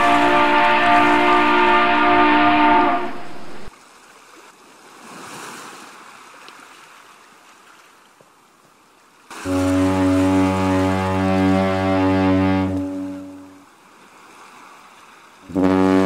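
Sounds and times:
many-toned horn blast: 0.0s - 3.7s, 9.4s - 13.6s, 15.5s - 16.0s
ship's deep horn: 0.0s - 3.7s, 9.4s - 13.7s, 15.4s - 16.0s
sea waves: 0.0s - 16.0s
wind: 0.0s - 16.0s.

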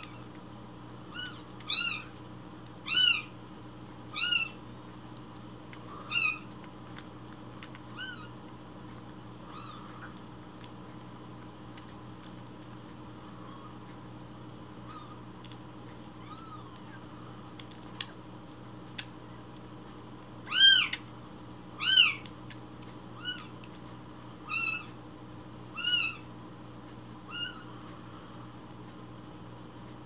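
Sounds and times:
kitten mewing: 1.1s - 2.2s, 4.1s - 4.6s, 5.9s - 6.5s.

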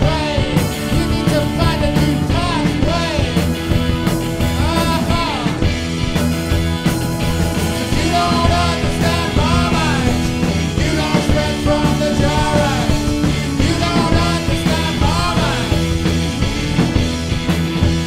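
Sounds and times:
person singing: 0.0s - 3.5s, 4.5s - 5.7s, 7.8s - 16.0s
live rock band playing: 0.0s - 18.0s.

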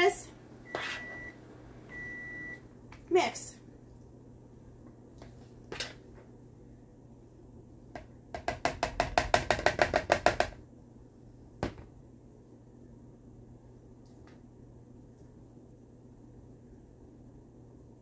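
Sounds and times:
spoon knocking on mixing bowl: 8.0s - 10.6s.

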